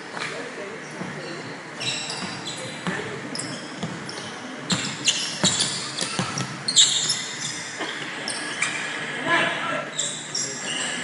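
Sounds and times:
sneakers squeaking: 0.0s - 11.0s
basketball bouncing on floor: 4.7s - 6.6s.

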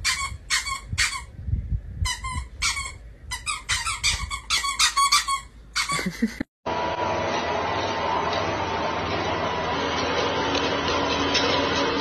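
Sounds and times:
squeaky toy squeaks: 0.0s - 1.3s, 2.0s - 6.1s.

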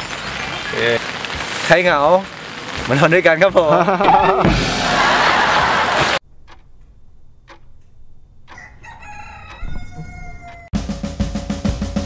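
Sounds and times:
rooster crowing: 8.5s - 10.8s.

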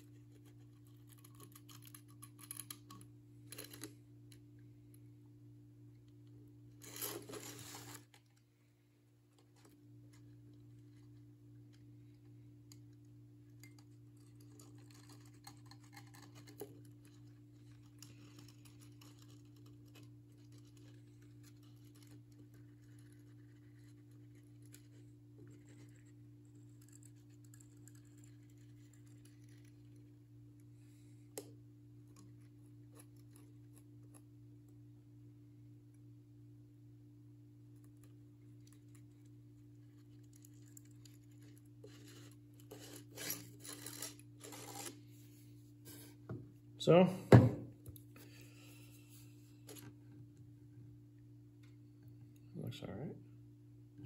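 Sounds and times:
clicks and rustles of handling: 0.0s - 5.0s, 9.2s - 34.8s, 37.7s - 46.6s.

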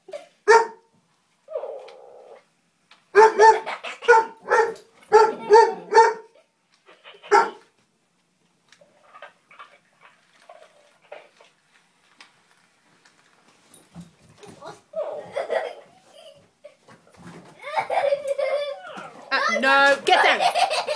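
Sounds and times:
toy puppy barking: 3.2s - 6.2s.

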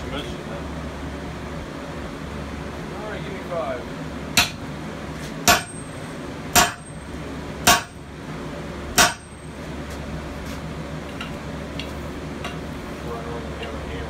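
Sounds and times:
sledgehammer striking steel: 4.4s - 4.7s, 5.4s - 8.1s, 8.9s - 9.4s.

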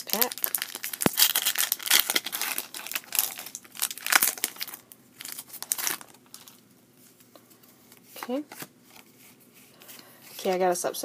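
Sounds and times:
foil wrapper crinkling: 0.0s - 6.6s.

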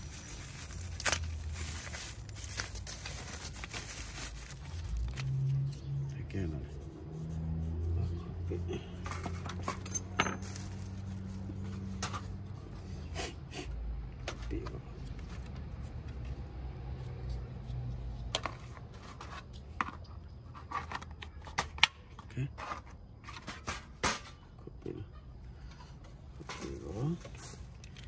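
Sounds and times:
fryer basket and packaging clatter: 0.0s - 5.4s, 9.0s - 12.4s, 26.3s - 28.0s.

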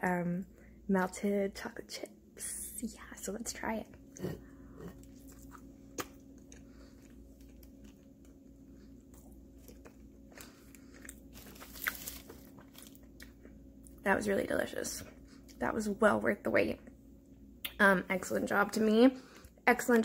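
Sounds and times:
steady low hum: 0.0s - 20.0s
person chewing: 4.1s - 13.6s.

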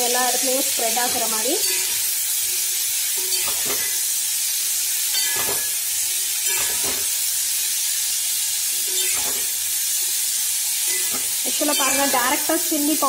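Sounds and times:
vegetables sizzling in oil: 0.0s - 13.0s
spatula scraping: 3.1s - 4.2s, 5.2s - 7.4s, 8.8s - 9.8s.

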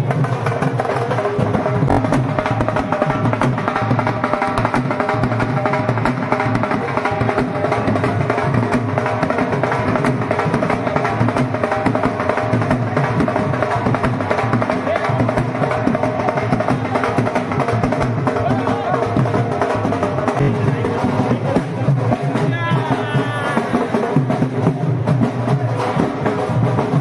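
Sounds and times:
band tune: 0.0s - 27.0s
barrel drums beaten fast: 0.0s - 27.0s.

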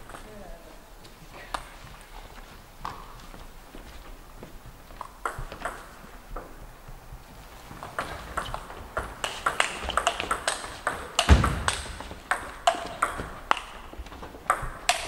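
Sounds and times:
table tennis ball clicking: 7.8s - 15.0s
heavy thump: 11.3s - 12.2s.

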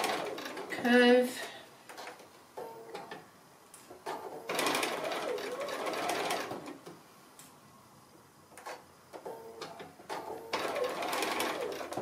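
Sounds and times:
sewing machine stitching: 0.0s - 0.7s, 4.1s - 6.8s, 9.6s - 12.0s.

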